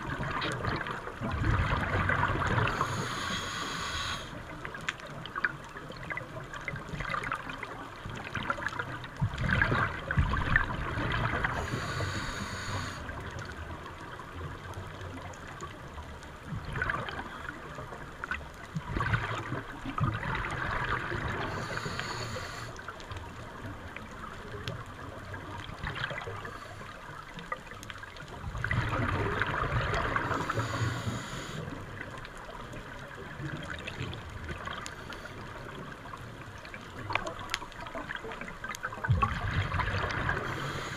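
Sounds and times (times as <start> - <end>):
underwater exhaled bubbles gurgling: 0.0 - 40.9
regulator breath hiss: 2.7 - 4.4, 11.6 - 13.1, 21.5 - 22.8, 30.3 - 31.8, 40.4 - 40.9.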